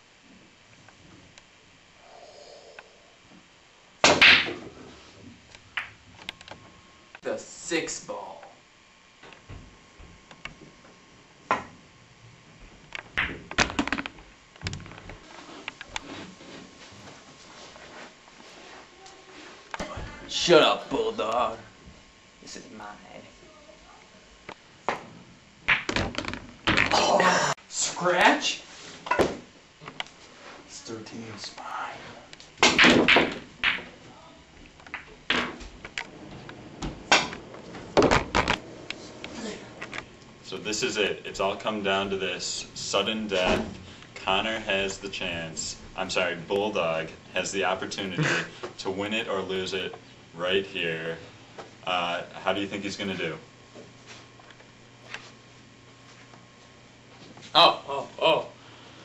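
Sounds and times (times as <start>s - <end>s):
pool balls clicking: 5.7s - 6.6s, 12.9s - 15.2s, 25.6s - 27.0s, 32.6s - 34.0s, 34.6s - 40.4s.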